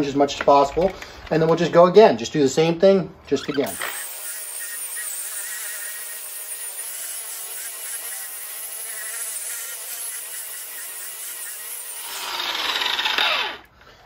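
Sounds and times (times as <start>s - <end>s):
rotary polisher whining: 3.6s - 13.7s.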